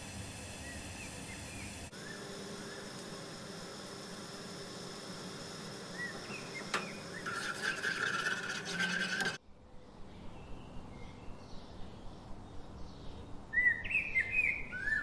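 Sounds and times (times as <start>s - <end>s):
faint chirps: 0.4s - 7.4s
metal spoon scraping saucepan: 6.1s - 9.4s.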